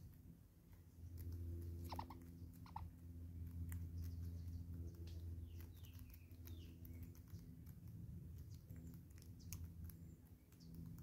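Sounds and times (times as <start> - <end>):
low steady hum: 0.0 - 11.0
short chirping bird calls: 1.8 - 2.9.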